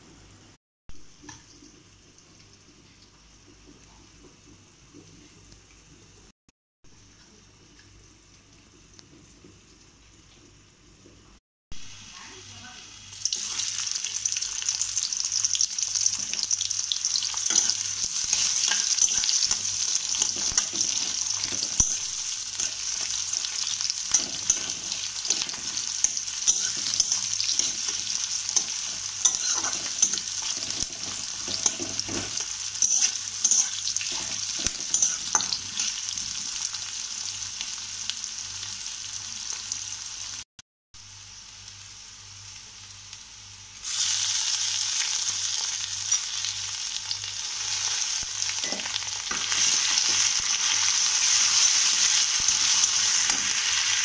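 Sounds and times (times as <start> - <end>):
onions sizzling in hot oil: 11.8 - 54.0
spatula scraping pan: 17.4 - 36.1.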